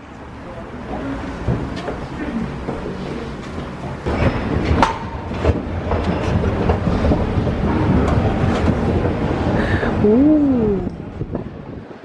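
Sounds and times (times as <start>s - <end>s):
moving walkway rumbling and clacking: 0.0s - 12.0s
footsteps on metal plates: 1.4s - 9.2s.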